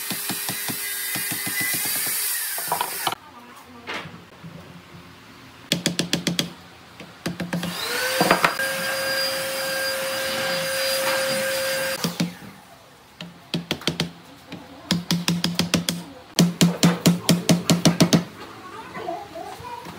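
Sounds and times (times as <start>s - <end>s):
power tool motor running: 0.0s - 3.2s, 7.6s - 12.4s.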